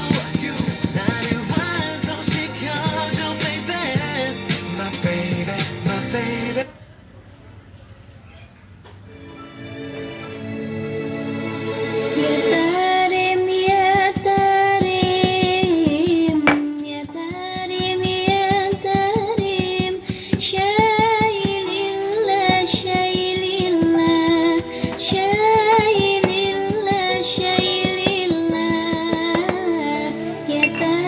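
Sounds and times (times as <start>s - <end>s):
song with quick beat: 0.0s - 6.0s, 12.0s - 29.9s.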